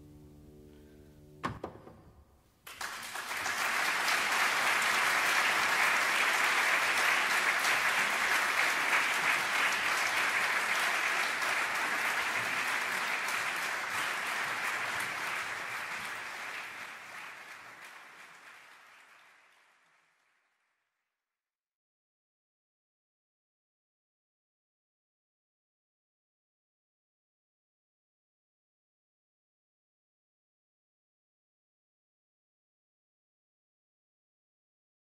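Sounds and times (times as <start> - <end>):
audience applauding: 2.6 - 20.6.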